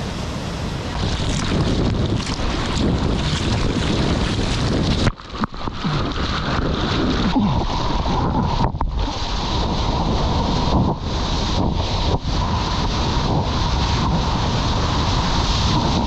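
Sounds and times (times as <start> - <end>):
wind buffeting microphone: 0.0 - 16.0
hands paddling through water: 0.9 - 9.1.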